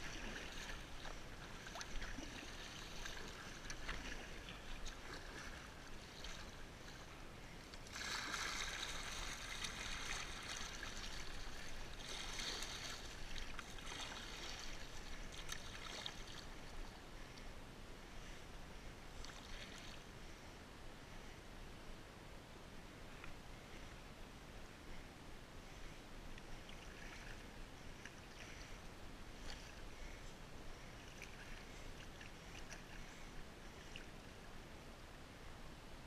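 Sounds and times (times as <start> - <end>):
small splashes and drips: 0.0 - 6.5, 7.8 - 16.8
water rushing along kayak hull: 0.0 - 17.5.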